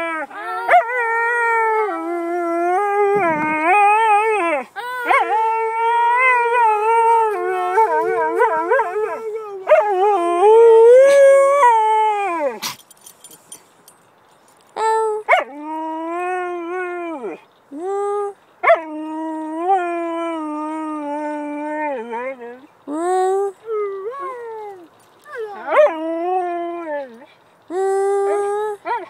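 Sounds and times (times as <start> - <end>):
husky howling: 0.0 - 12.6.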